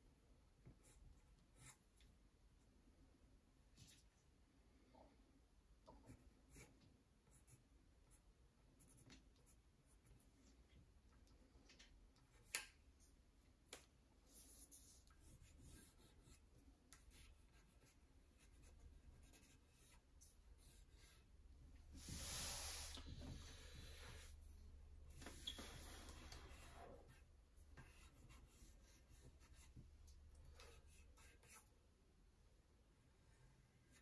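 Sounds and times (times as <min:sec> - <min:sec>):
pencil scratching on paper: 0:06.1 - 0:08.2, 0:08.8 - 0:10.2, 0:14.3 - 0:21.3, 0:25.2 - 0:29.8, 0:30.4 - 0:31.7.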